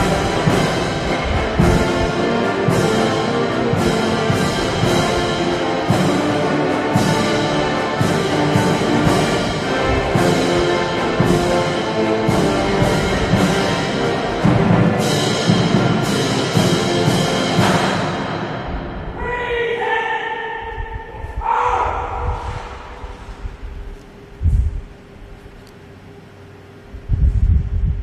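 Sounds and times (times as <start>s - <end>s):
drum and cymbal strokes: 0.0s - 19.1s
military band music: 0.0s - 19.4s.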